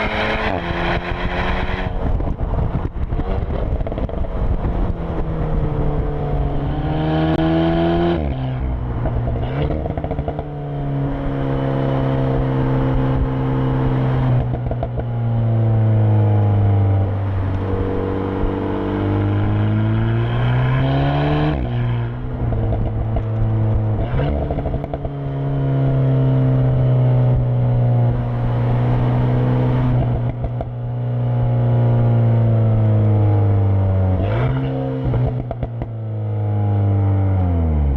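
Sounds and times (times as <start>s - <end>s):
car engine accelerating through gears: 0.0s - 37.9s.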